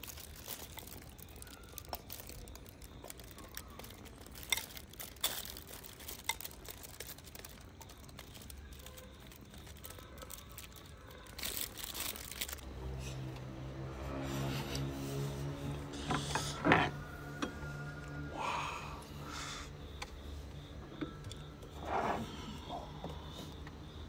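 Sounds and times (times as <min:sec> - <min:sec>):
crinkling and handling noises: 0:00.0 - 0:14.2
music: 0:13.4 - 0:19.8.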